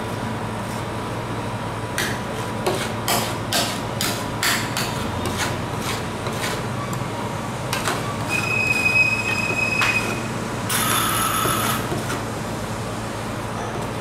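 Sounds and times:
spatula scraping metal plate: 4.8 - 6.6
blade squealing on metal: 8.0 - 11.8.

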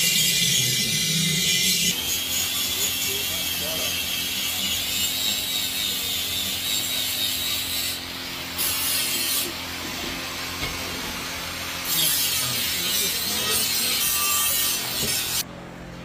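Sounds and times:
iron rod scraping molten metal: 0.0 - 10.8.

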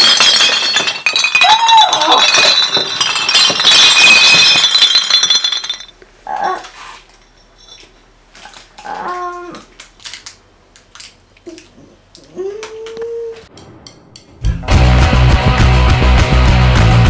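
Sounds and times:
glass bottles clinking: 0.0 - 6.0.

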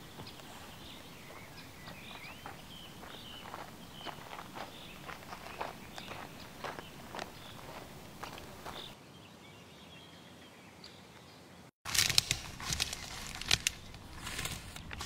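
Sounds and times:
footsteps crunching on twigs: 0.0 - 9.0, 11.9 - 15.0.

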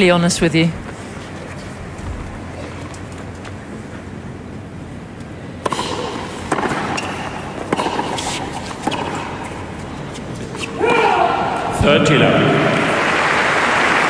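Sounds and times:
tennis ball bouncing on court: 5.6 - 10.7.

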